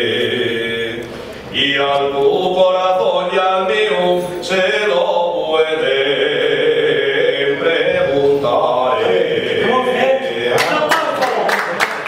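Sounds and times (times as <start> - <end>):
man singing unaccompanied: 1.6 - 11.2.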